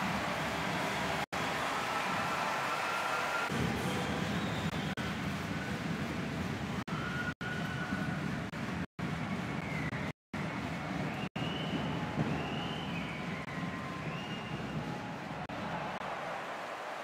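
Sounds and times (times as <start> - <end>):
arena crowd cheering: 0.0 - 5.7, 9.6 - 17.0.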